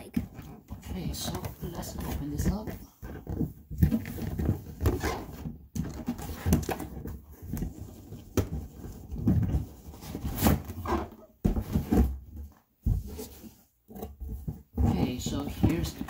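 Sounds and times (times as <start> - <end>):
cardboard box scuffing and knocking: 8.2 - 16.0.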